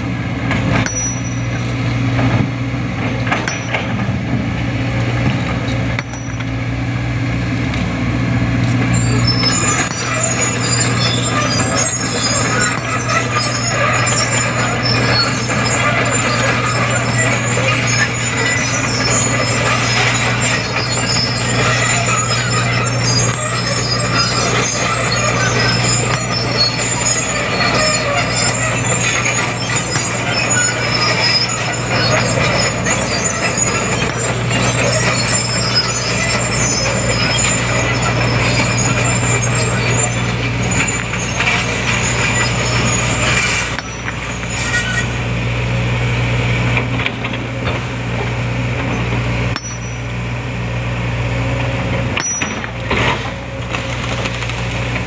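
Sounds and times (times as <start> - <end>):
excavator engine drone: 0.0 - 55.0
high squeaks and creaks: 8.8 - 45.4.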